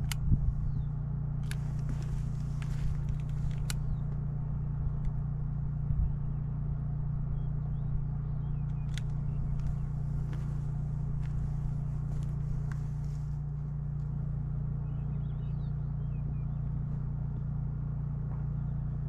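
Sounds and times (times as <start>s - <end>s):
engine humming steadily: 0.0s - 19.0s
sharp clicks: 1.4s - 4.2s, 8.6s - 10.4s.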